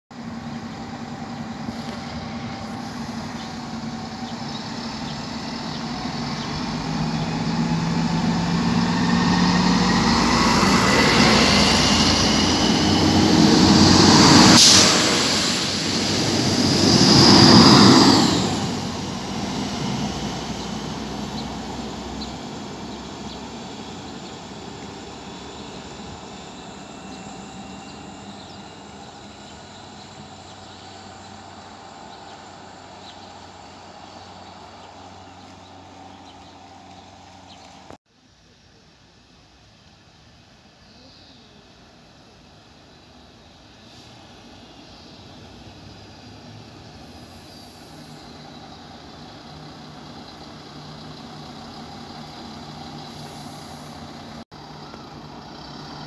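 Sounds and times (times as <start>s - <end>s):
diesel train passing: 0.1s - 38.0s, 41.4s - 56.0s
transmission whine: 0.2s - 38.0s.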